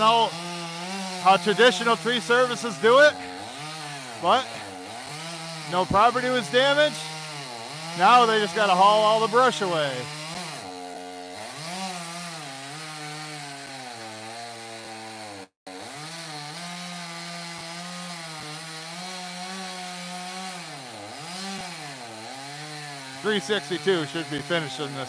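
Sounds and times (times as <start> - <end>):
chainsaw cutting wood: 0.0 - 25.0.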